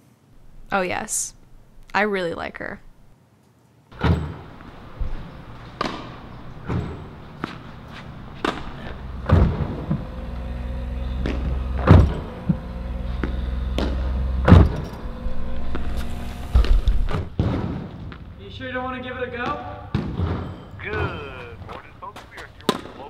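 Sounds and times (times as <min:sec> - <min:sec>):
tennis balls being hit: 0:04.0 - 0:10.0
low steady drone: 0:04.5 - 0:17.2.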